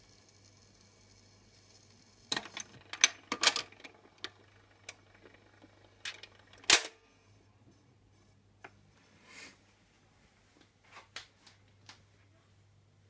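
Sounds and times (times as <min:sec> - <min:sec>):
faint low hum: 0:00.0 - 0:13.0
record changer clicks and clunks: 0:02.2 - 0:07.0.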